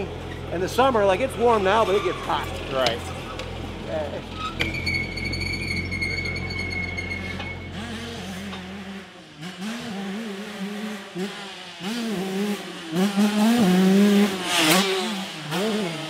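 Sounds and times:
two-stroke motorcycle engine revving: 0:07.7 - 0:16.0.

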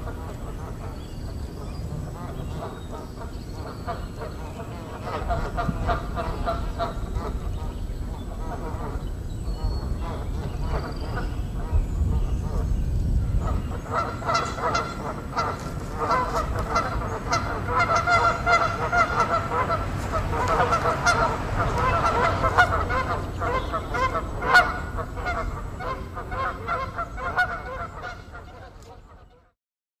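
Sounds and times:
waterbirds calling: 0:00.0 - 0:29.5.

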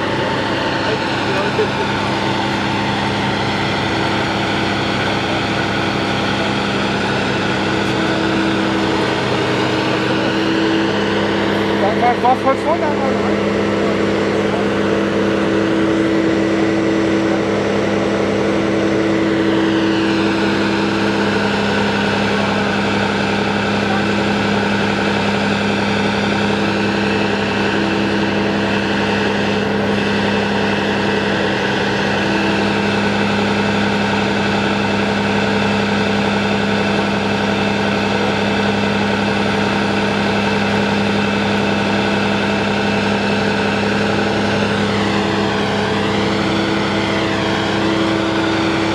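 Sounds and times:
diesel engine droning: 0:00.0 - 0:48.9
higher hum: 0:00.0 - 0:48.9.

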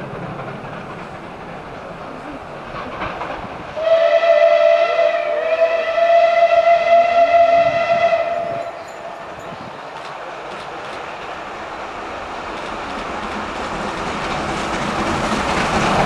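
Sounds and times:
train horn warning note: 0:03.8 - 0:09.1.

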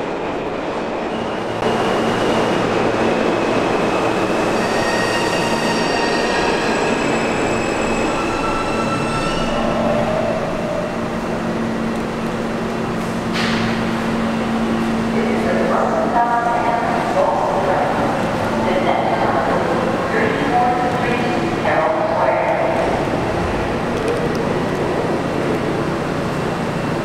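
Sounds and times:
subway train rumbling: 0:00.0 - 0:27.0
train wheels squealing: 0:03.9 - 0:10.4.

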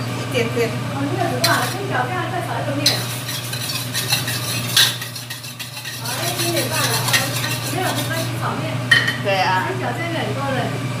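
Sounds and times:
utensil clinking in metal bowl: 0:01.4 - 0:01.9, 0:02.8 - 0:09.2.

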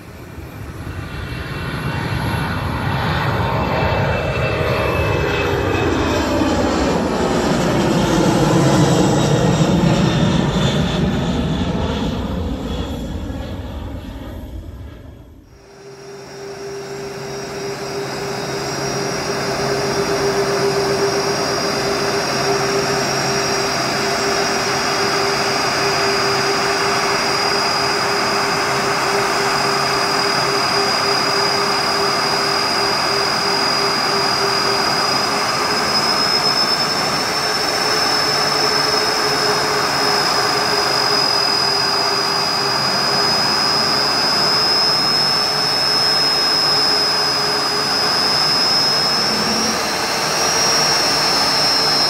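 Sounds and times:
jet engines rushing with whine: 0:00.0 - 0:52.0
low hum: 0:00.0 - 0:52.0.

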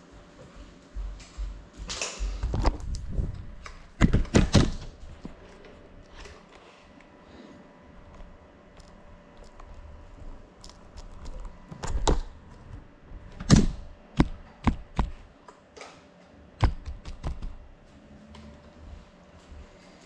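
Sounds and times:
faint steady hum: 0:00.0 - 0:20.0
knocks taps and clicks: 0:13.5 - 0:15.2, 0:16.6 - 0:17.6.

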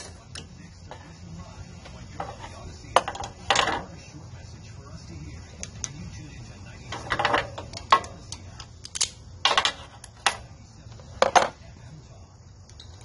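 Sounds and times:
hand tools clinking on metal: 0:00.0 - 0:01.0.

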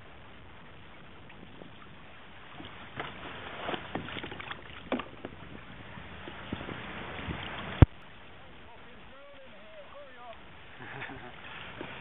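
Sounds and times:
water splashing and lapping: 0:00.0 - 0:12.0
knocks against kayak hull: 0:02.6 - 0:05.4.

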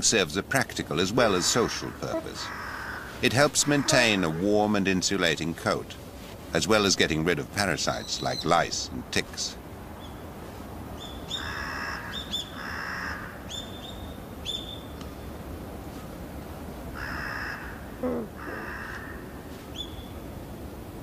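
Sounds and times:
crows cawing: 0:01.2 - 0:04.8, 0:11.3 - 0:13.5, 0:16.9 - 0:19.5.

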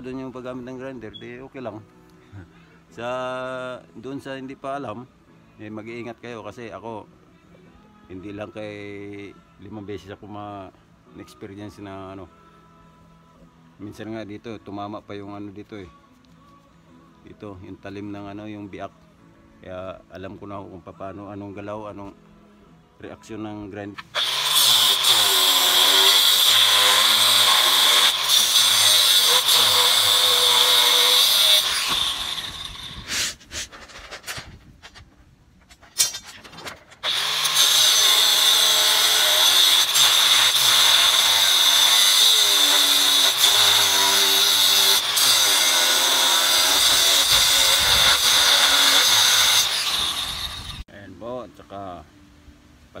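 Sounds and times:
angle grinder cutting steel: 0:24.0 - 0:33.4, 0:37.0 - 0:50.8.

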